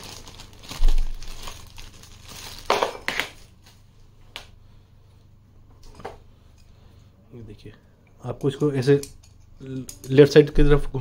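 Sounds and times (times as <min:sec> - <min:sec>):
plastic bag crinkling: 0:00.0 - 0:03.8.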